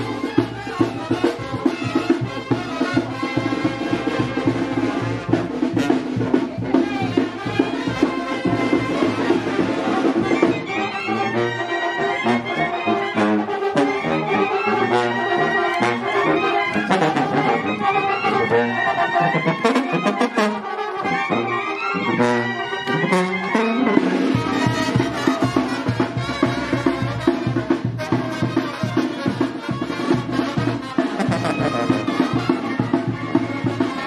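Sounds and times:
brass band playing: 0.0 - 34.0.

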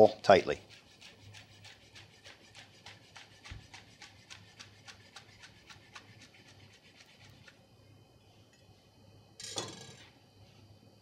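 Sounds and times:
knife slicing leaves on cutting board: 0.6 - 7.5.

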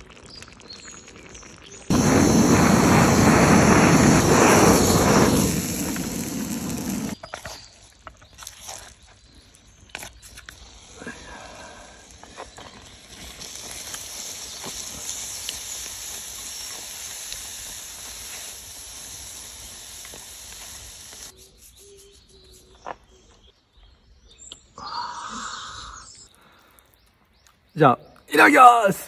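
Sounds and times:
food cooking hiss: 0.0 - 7.2, 9.6 - 22.7.

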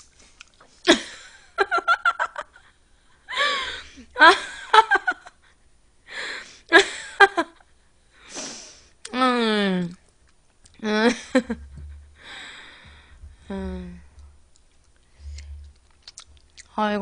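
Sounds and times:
young woman laughing: 3.3 - 5.4, 10.8 - 12.3
woman breathing in: 6.1 - 6.7, 12.2 - 13.5.

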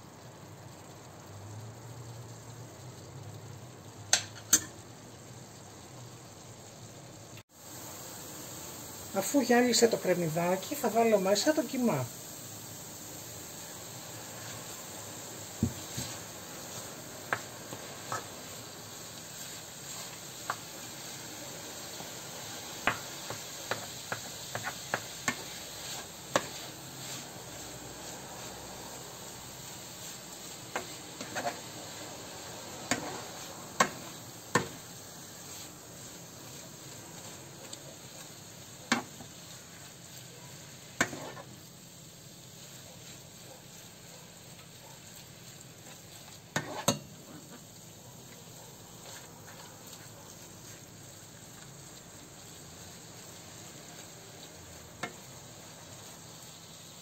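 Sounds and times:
meat sizzling in a pan: 0.0 - 57.0
spoon scraping a pan: 15.6 - 18.6, 22.8 - 28.6, 29.9 - 31.8, 32.8 - 37.4, 41.0 - 41.6, 44.6 - 47.7.

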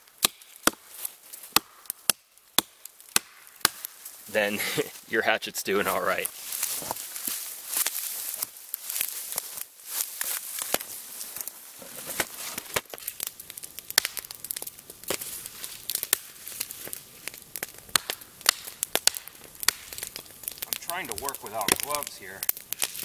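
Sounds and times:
campfire crackling and popping: 0.0 - 23.0
hatchet chopping log: 0.2 - 0.8, 1.5 - 3.9.

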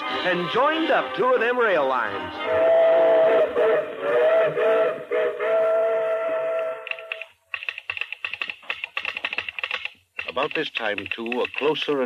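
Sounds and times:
steam locomotive whistle: 2.1 - 7.2
fast clatter of clicks: 6.9 - 12.0.

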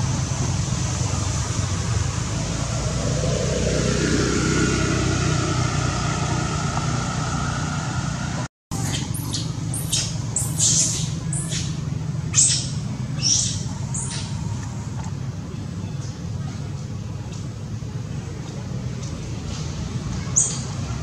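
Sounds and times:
vehicle engine rumbling: 0.0 - 21.0
high chirping calls: 8.8 - 14.5, 20.2 - 20.9.

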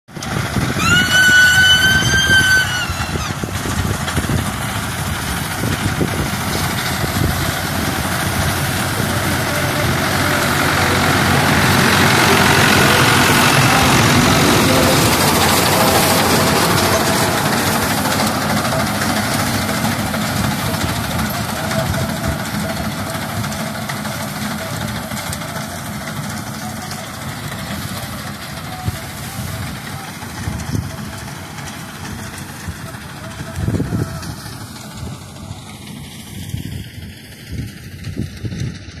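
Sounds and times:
tractor engine running: 0.1 - 39.0
loud high-pitched tone: 8.0 - 19.1.

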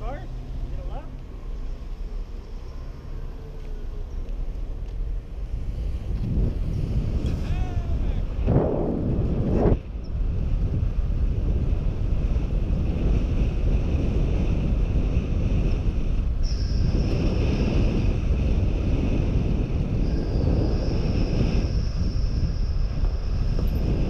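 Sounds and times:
wind buffeting microphone: 0.0 - 24.0
thin high hiss: 16.4 - 18.1.

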